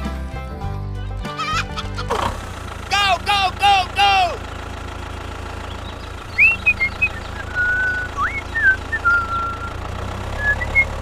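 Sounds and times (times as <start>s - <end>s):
low engine drone: 1.6s - 11.0s
whistled chirps and glides: 5.7s - 11.0s.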